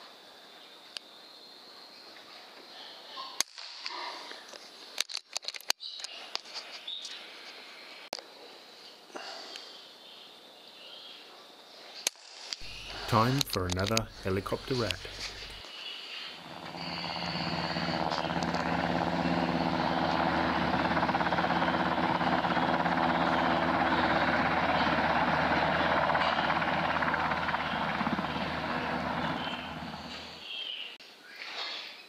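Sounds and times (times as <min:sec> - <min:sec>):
helicopter rotor and engine: 0:12.6 - 0:30.4.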